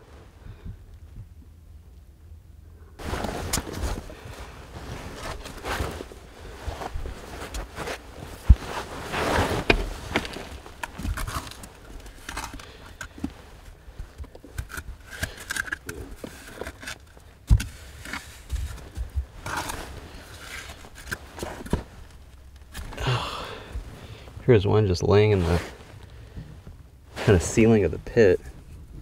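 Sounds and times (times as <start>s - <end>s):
shovel scraping soil: 19.4s - 21.7s.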